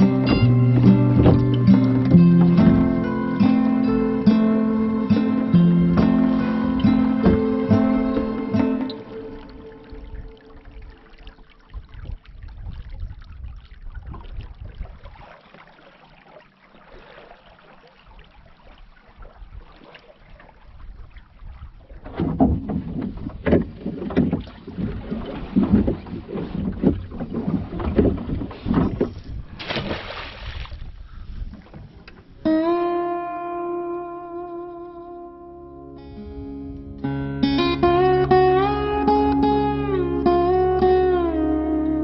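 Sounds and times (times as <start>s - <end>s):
light wind: 0.0s - 33.0s
oars splashing and knocking: 0.0s - 33.0s
water lapping along a boat hull: 0.0s - 42.0s.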